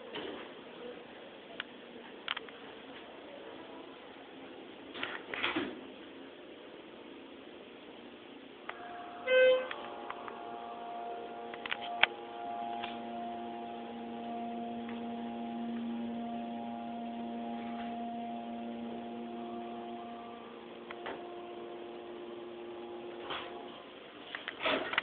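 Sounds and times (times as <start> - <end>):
hydraulic elevator humming: 8.7 - 25.0.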